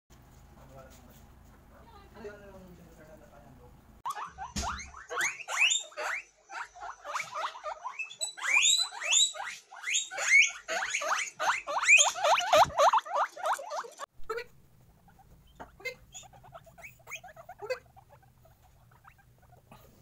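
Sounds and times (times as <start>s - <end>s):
guinea pigs wheeking: 4.0s - 20.0s.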